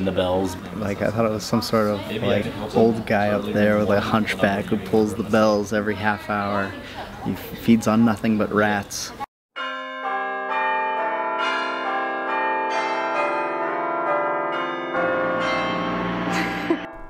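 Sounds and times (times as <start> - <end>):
carillon bells playing a tune: 9.6 - 17.0.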